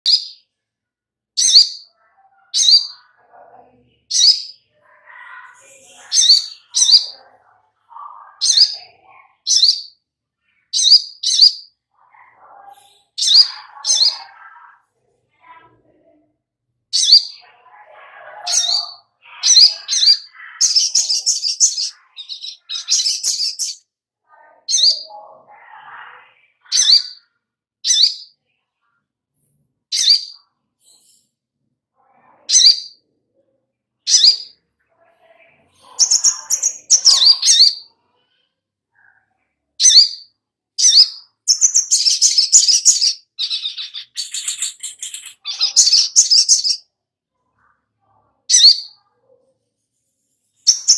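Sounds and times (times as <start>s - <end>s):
bird chattering song: 0.0s - 0.5s, 1.4s - 14.7s, 16.9s - 28.4s, 29.9s - 31.2s, 32.4s - 33.0s, 34.1s - 34.6s, 35.4s - 37.9s, 39.8s - 46.9s, 48.5s - 49.0s, 50.6s - 50.9s
bird chirping: 0.0s - 0.5s, 1.4s - 16.2s, 16.9s - 31.3s, 32.3s - 33.0s, 34.0s - 39.2s, 39.8s - 46.9s, 48.4s - 49.4s, 50.4s - 50.9s.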